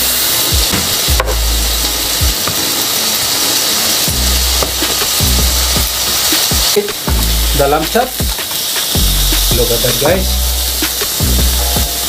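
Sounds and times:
sizzling hiss of cooking: 0:00.0 - 0:12.0
water boiling: 0:00.0 - 0:12.0.

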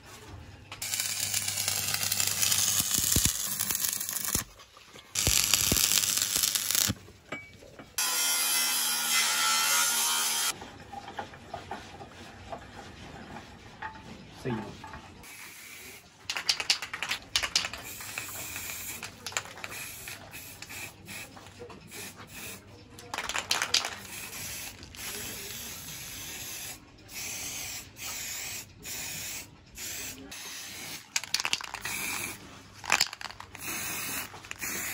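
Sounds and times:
spray can hissing: 0:00.8 - 0:04.4, 0:05.2 - 0:07.0, 0:15.3 - 0:21.3, 0:23.2 - 0:34.9.

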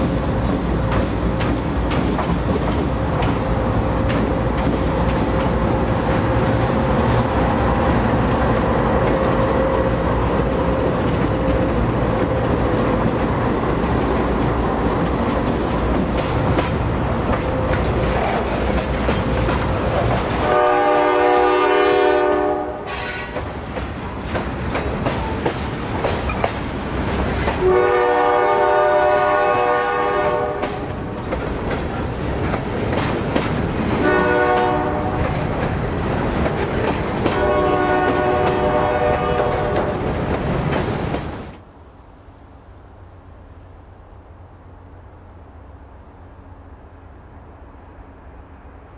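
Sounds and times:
diesel locomotive engine rumble: 0:00.0 - 0:48.9
locomotive air horn blasts: 0:20.4 - 0:23.3, 0:27.6 - 0:30.9, 0:34.0 - 0:35.2, 0:37.3 - 0:40.0.

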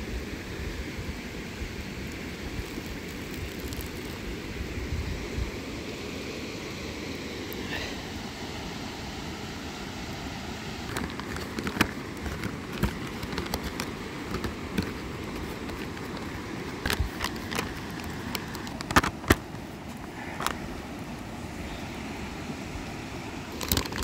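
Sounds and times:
river water rushing: 0:00.4 - 0:24.0
sharp clicks and knocks: 0:10.9 - 0:19.5.

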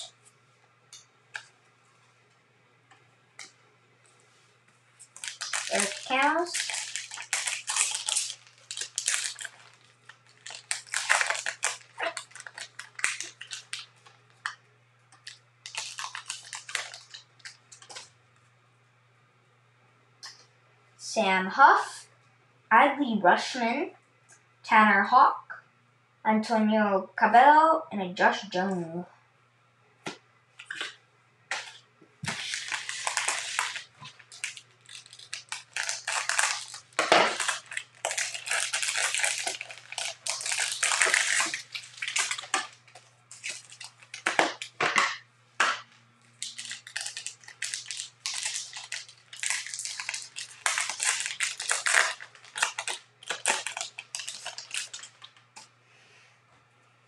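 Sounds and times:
plastic wrappers crinkling and tearing: 0:00.0 - 0:00.3, 0:04.3 - 0:18.2, 0:30.6 - 0:55.7.

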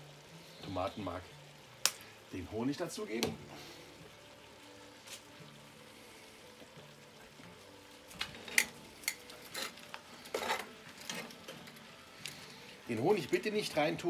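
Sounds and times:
vegetables sizzling: 0:00.0 - 0:14.0
metal tongs scraping a pot: 0:08.2 - 0:11.7.

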